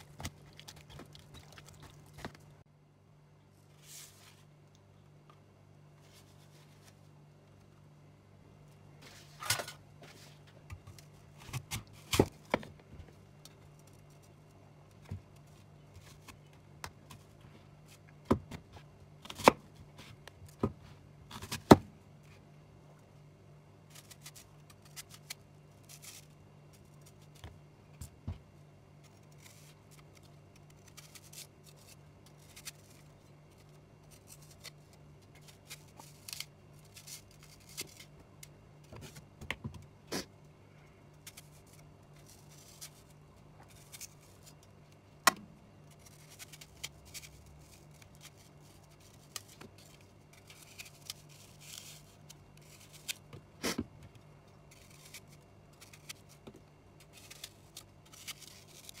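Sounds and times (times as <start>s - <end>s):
faint low hum: 0.0s - 59.0s
knife cutting an apple: 18.3s - 20.7s, 54.7s - 59.0s.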